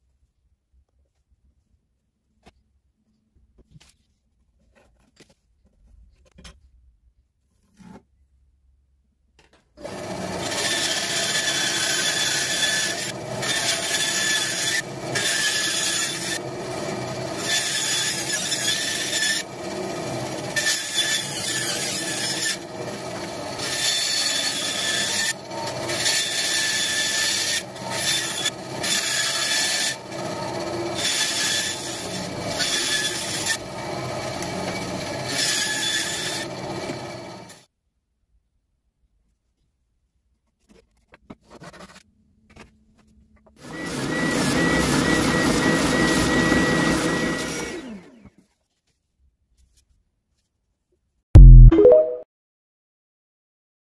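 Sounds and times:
bandsaw cutting wood: 0:09.8 - 0:37.6, 0:43.6 - 0:48.3.

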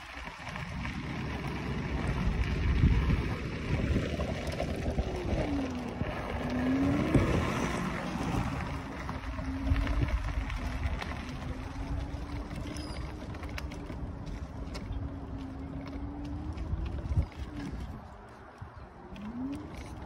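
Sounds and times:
mobility scooter motor whine: 0:00.0 - 0:20.0
wheels rumbling on road: 0:00.0 - 0:20.0
wind on microphone: 0:00.0 - 0:20.0.

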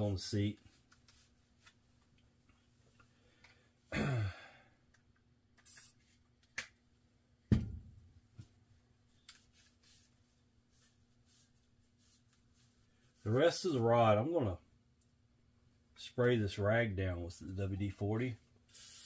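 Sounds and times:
man sighing: 0:03.9 - 0:04.8
short hiss: 0:05.6 - 0:06.0, 0:18.7 - 0:19.0.

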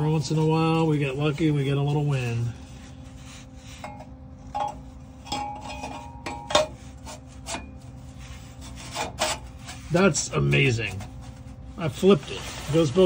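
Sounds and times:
metal pipe scraping and knocking: 0:02.7 - 0:11.5.

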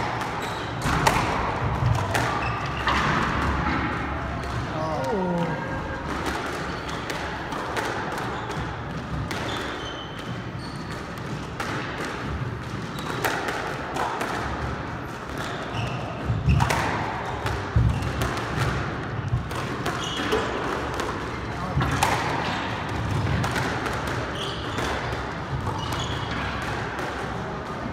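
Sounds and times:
squash ball hitting walls and floor: 0:00.0 - 0:27.9
shoes squeaking on floorboards: 0:00.3 - 0:01.0, 0:02.3 - 0:03.1, 0:06.6 - 0:07.4, 0:08.2 - 0:11.4, 0:15.5 - 0:18.2, 0:19.9 - 0:20.5, 0:24.3 - 0:26.6.

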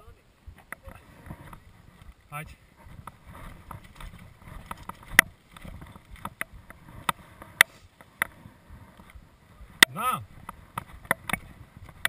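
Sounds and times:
bike clacking and rattling: 0:03.0 - 0:07.2.

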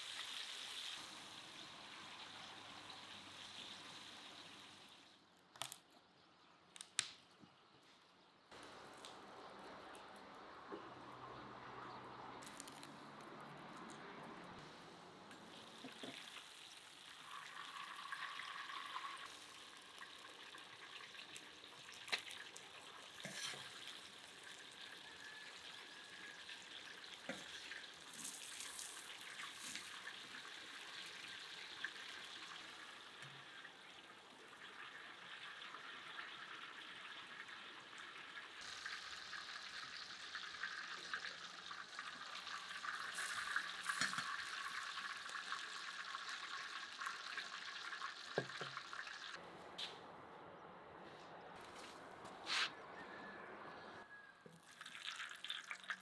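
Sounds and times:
chicken sizzling in oil: 0:00.0 - 0:05.1, 0:15.3 - 0:49.4.

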